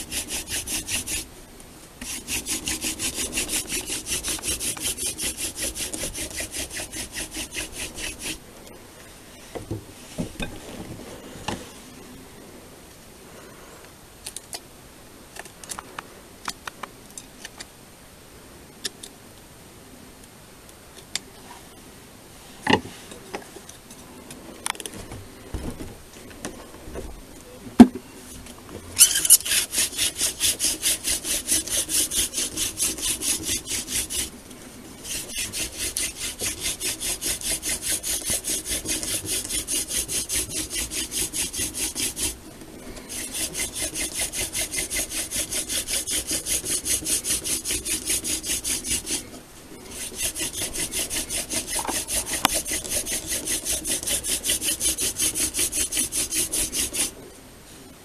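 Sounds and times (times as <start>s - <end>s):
wooden spindle rasping: 0.0s - 1.3s, 2.0s - 8.4s, 29.0s - 34.3s, 35.0s - 57.1s.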